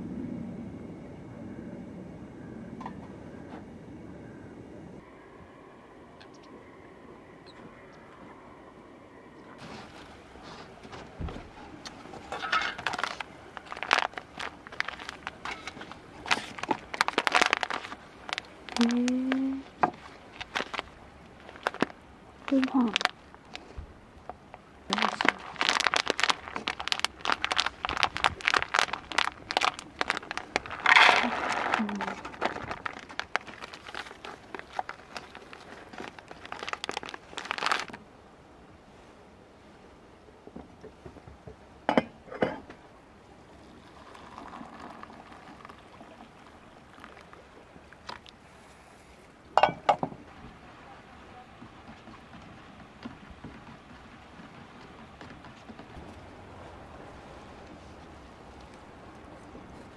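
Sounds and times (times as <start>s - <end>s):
plastic pouch crinkling: 12.7s - 23.7s, 24.9s - 38.0s
hot water pouring into cup: 43.6s - 47.3s
pot clinks and knocks: 49.6s - 50.2s.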